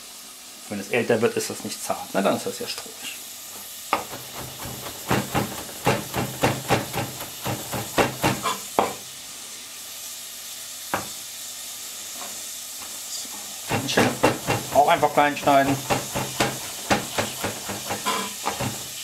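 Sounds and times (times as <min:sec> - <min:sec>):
carrots sizzling in butter: 0:00.0 - 0:19.0
knife chopping on cutting board: 0:03.9 - 0:09.0, 0:13.7 - 0:19.0.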